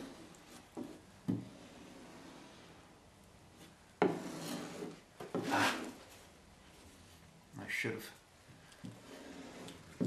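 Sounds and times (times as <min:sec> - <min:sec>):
putty knife scraping: 0:04.0 - 0:06.0, 0:08.9 - 0:10.0.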